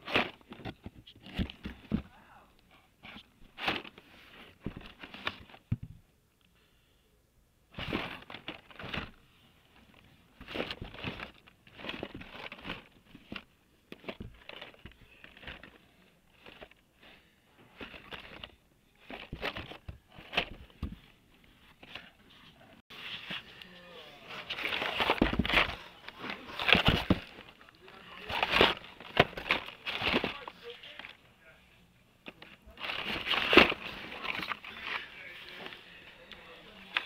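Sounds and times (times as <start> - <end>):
plastic blister packs clacking: 24.5 - 31.2, 32.2 - 35.0.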